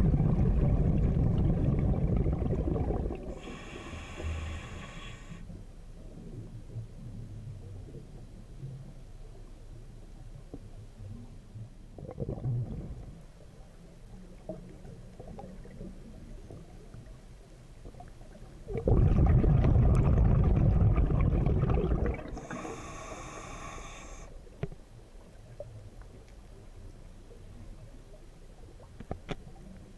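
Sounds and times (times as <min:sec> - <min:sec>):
exhaled bubbles rushing: 0:00.0 - 0:03.6, 0:12.0 - 0:13.2, 0:18.7 - 0:22.8
diver breathing underwater: 0:02.6 - 0:05.5, 0:18.8 - 0:24.4.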